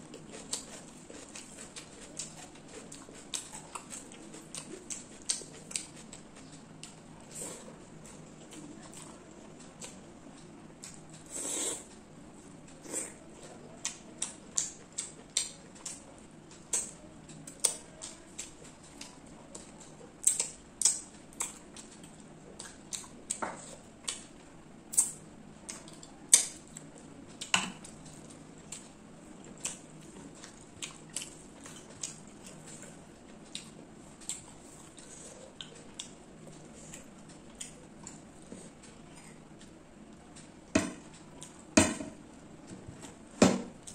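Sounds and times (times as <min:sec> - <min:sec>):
wet mouth chewing sounds: 0:00.0 - 0:09.1.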